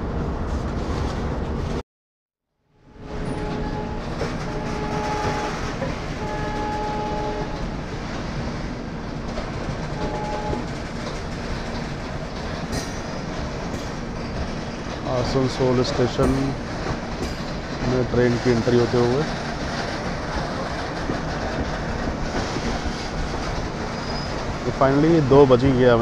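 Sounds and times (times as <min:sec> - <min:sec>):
train horn blasts: 0:02.8 - 0:07.8, 0:10.0 - 0:10.8
train wheels rumbling on track: 0:02.8 - 0:26.0.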